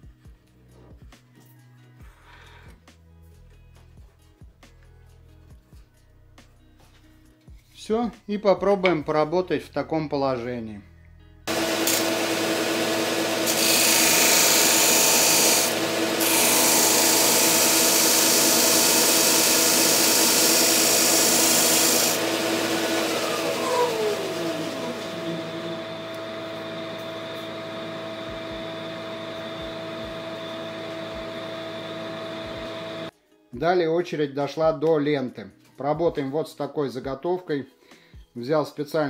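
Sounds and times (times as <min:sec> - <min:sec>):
sander motor winding down: 0:11.5 - 0:33.1
vacuum humming: 0:11.5 - 0:33.1
wood on sanding disc: 0:11.5 - 0:33.1.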